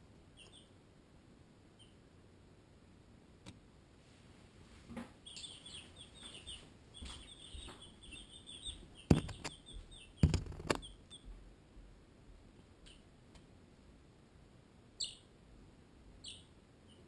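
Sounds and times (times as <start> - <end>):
baby chicks peeping: 0.1 - 0.9, 1.6 - 2.1, 5.0 - 13.4, 14.8 - 15.4, 16.2 - 17.0
loud knocks: 9.1 - 9.5, 10.2 - 10.8.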